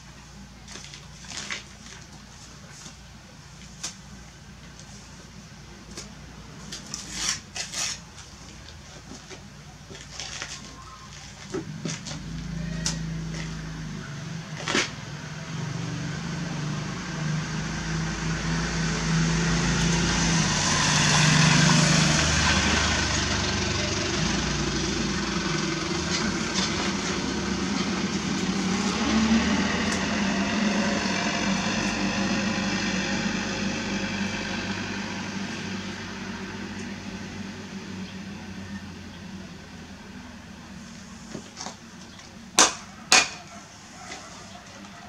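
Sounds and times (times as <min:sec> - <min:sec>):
vehicle engine passing: 0:12.1 - 0:40.8.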